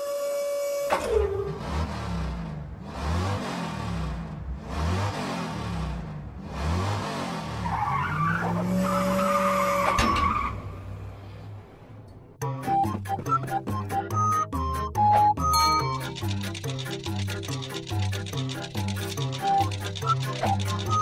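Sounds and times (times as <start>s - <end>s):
tires skidding: 6.4s - 11.8s.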